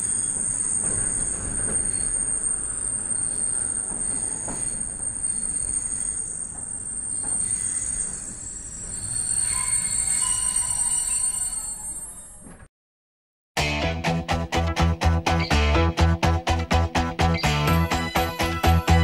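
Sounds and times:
railway coach rumble: 0.0 - 11.8
high-pitched wheel squeal: 0.0 - 12.5.

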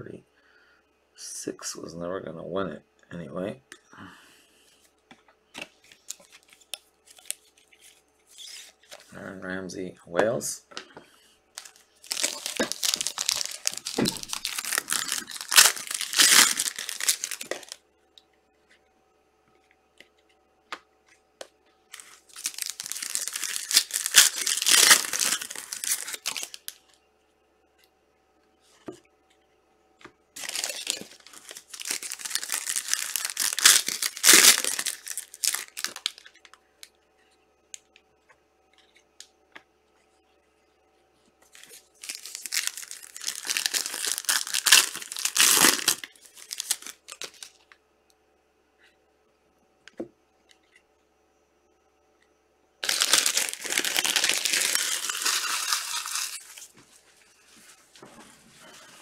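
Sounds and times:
plastic wrapping tearing and crinkling: 11.6 - 17.8, 21.9 - 26.8, 30.4 - 36.6, 41.6 - 47.6, 52.8 - 56.8.

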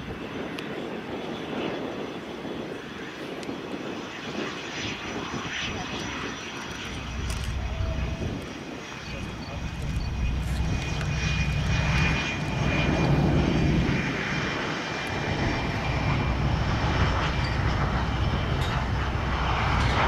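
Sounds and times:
jet engines rumbling: 0.0 - 20.0
faint high whine: 5.6 - 20.0.

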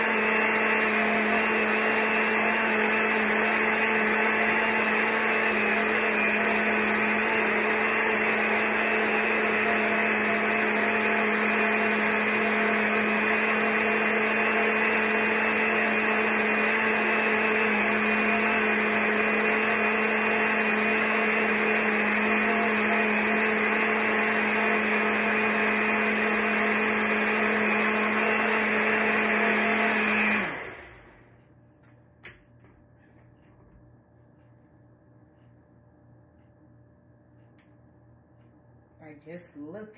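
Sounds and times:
blender running: 0.0 - 31.3.

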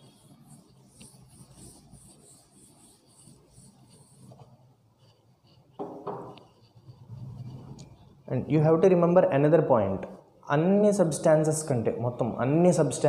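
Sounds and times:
duster scrubbing a chalkboard: 0.0 - 7.8.

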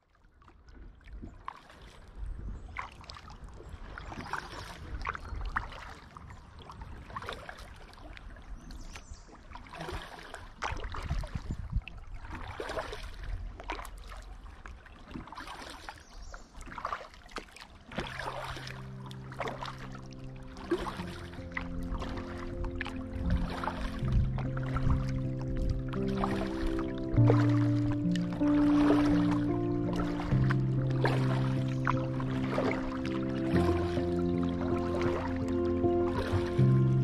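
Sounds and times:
kayak paddle splashing: 0.0 - 37.0
water dripping: 17.9 - 37.0
music: 18.1 - 37.0
low rumble: 19.0 - 37.0.

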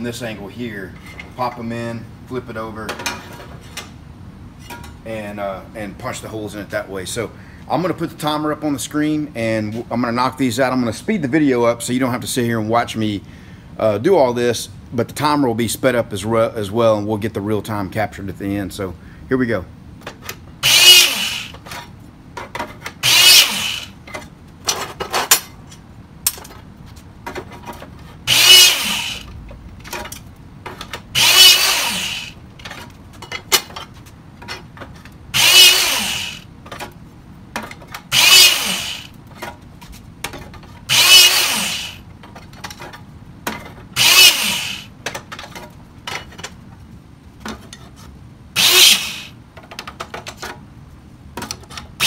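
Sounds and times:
hydraulic punch motor whining: 20.6 - 21.7, 23.0 - 24.0, 28.2 - 29.4, 30.9 - 32.4, 35.3 - 36.5, 38.1 - 39.2, 40.9 - 42.1, 44.0 - 45.0, 48.6 - 49.4.

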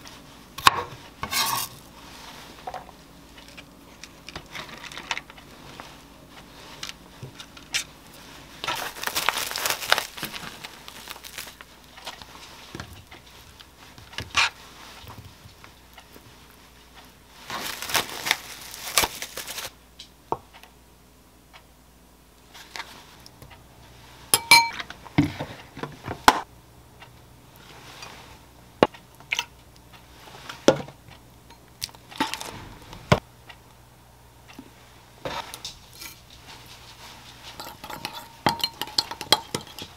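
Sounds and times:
plastic bag crinkling: 8.6 - 12.2, 17.4 - 19.7
metal spoon clinking: 24.4 - 24.9, 37.6 - 39.9.

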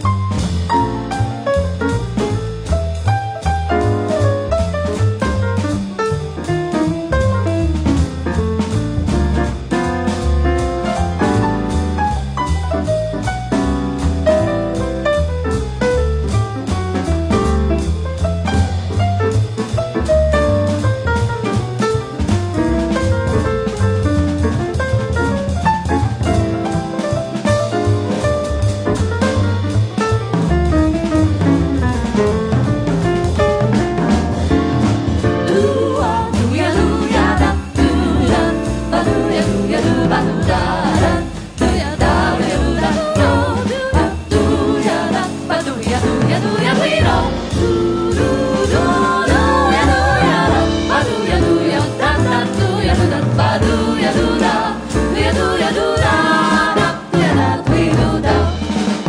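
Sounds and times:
double bass: 0.0 - 59.0
drum kit cymbals: 0.0 - 59.0
jazz vocal harmony: 0.0 - 59.0
piano: 0.0 - 59.0
vocal group singing: 35.2 - 59.0.

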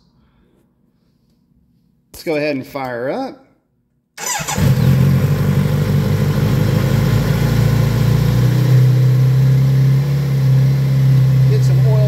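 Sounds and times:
motorcycle engine idling: 4.2 - 12.0.

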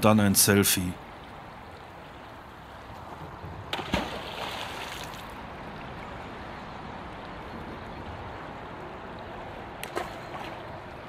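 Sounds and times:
river water rushing: 1.0 - 7.4.

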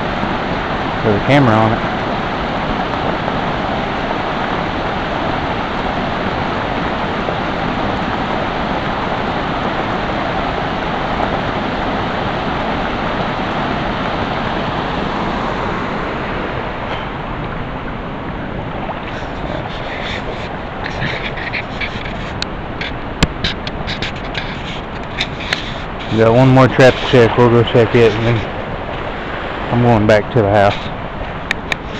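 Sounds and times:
small waterfall pouring: 0.0 - 17.8.

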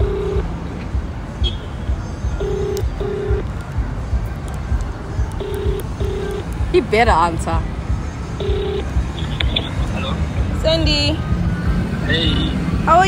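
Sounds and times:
phone ringback tone beeps: 0.0 - 0.5, 2.4 - 3.4, 5.4 - 6.5, 8.4 - 8.9.

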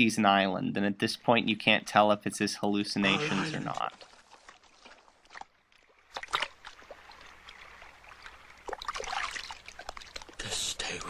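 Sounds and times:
dogs swimming in water: 3.8 - 11.0
sharp splash: 3.9 - 10.4.

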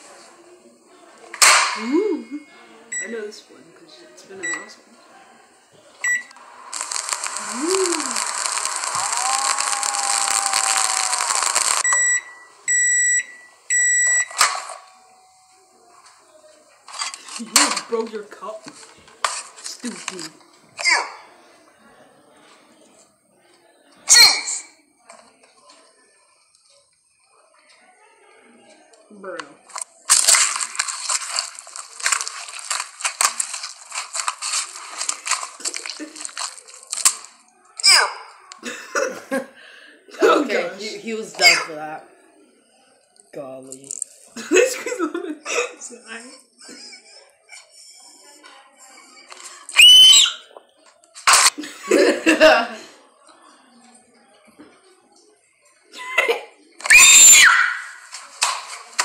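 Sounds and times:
microwave beeps: 2.3 - 3.2, 4.4 - 4.7, 6.0 - 6.3, 11.8 - 15.6
noodle cup crushed and crackling: 29.7 - 37.4.

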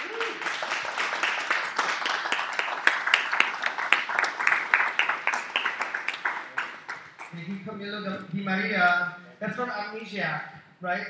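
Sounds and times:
small audience applauding: 0.0 - 7.6.

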